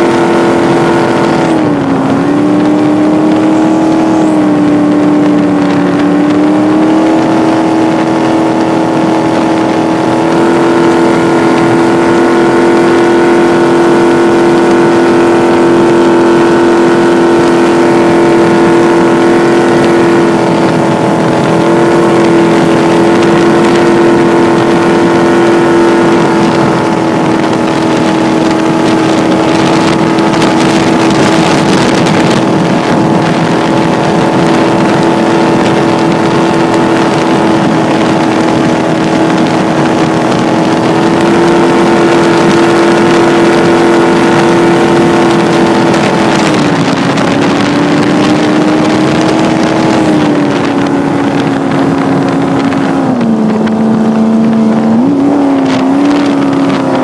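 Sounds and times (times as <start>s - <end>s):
boat engine drone: 0.0s - 57.0s.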